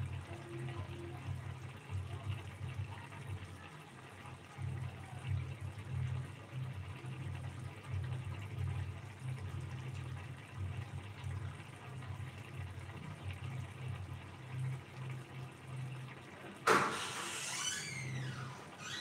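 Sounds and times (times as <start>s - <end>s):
gravy bubbling in pan: 0.0s - 19.0s.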